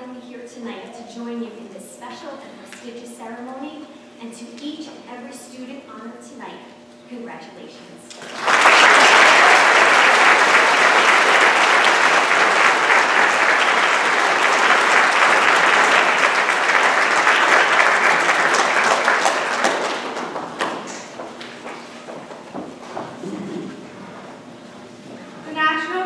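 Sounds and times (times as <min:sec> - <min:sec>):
audience applauding: 0:08.1 - 0:22.0.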